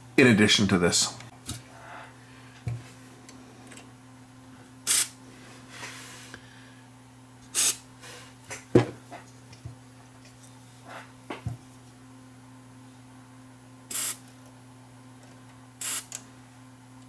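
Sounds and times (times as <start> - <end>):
aerosol spray hissing: 7.6 - 7.8, 13.9 - 14.2.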